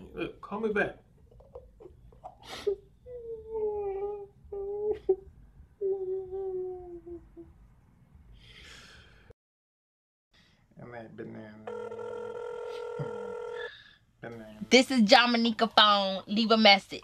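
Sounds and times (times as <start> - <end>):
man humming: 3.1 - 7.6.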